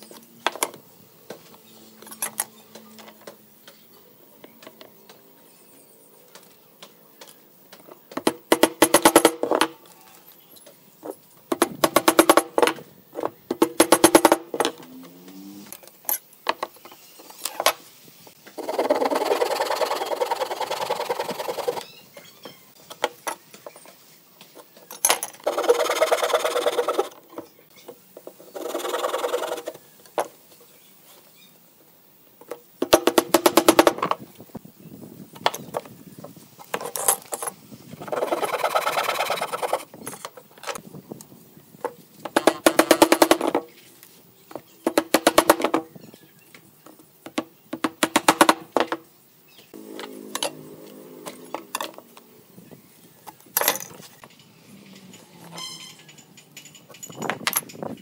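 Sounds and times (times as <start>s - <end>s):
hand saw cutting wood: 18.6s - 21.8s, 25.5s - 27.2s.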